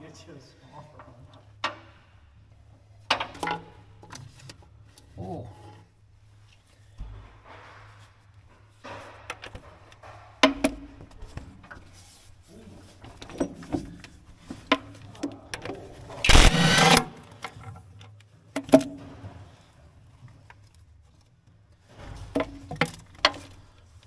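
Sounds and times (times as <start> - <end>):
impact wrench burst: 16.3 - 17.3.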